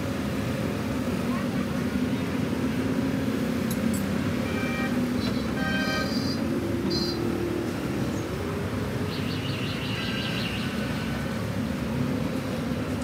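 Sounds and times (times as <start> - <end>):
background traffic rumble: 0.0 - 13.0.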